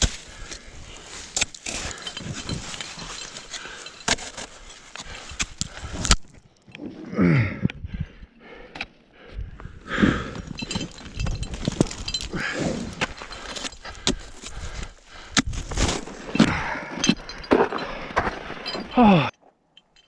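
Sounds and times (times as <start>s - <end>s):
climber breathing hard: 0.0s - 6.2s, 6.9s - 19.3s
ice axes striking snow: 0.0s - 6.4s, 10.0s - 19.2s
crampons kicking into snow: 15.4s - 16.3s.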